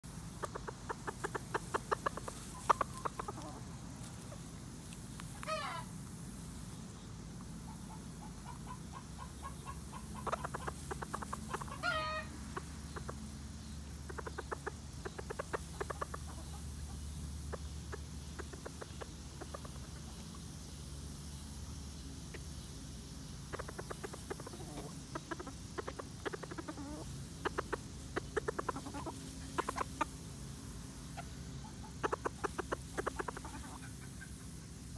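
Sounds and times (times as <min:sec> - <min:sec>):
chickens clucking: 0:00.0 - 0:34.9
chicken wavering calls: 0:00.1 - 0:06.1, 0:07.4 - 0:34.9.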